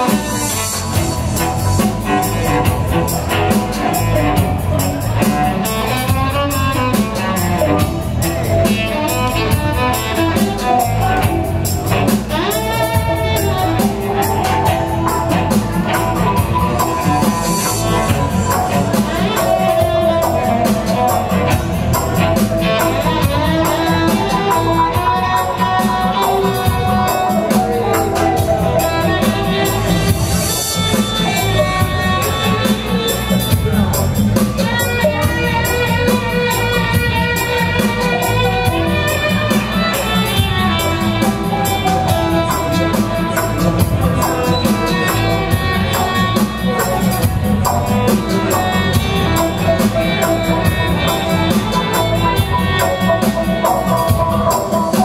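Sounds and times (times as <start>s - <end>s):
sustained melodic lines: 0.0s - 34.4s.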